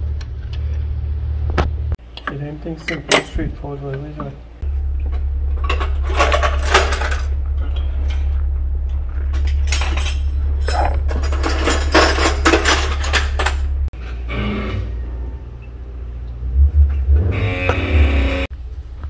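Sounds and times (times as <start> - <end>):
steady low hum: 0.0 - 19.0
hand tools clinking and rattling: 5.1 - 13.9.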